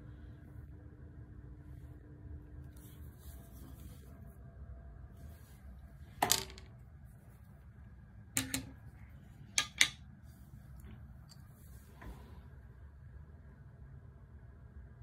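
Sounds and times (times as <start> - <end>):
low steady hum: 0.0 - 15.0
golf clubs clicking together: 9.6 - 10.0.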